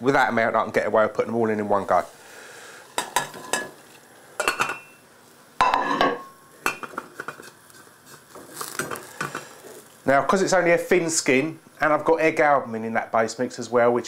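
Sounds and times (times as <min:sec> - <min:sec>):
metal pan and lid clinking: 0:04.4 - 0:05.0, 0:05.6 - 0:07.5.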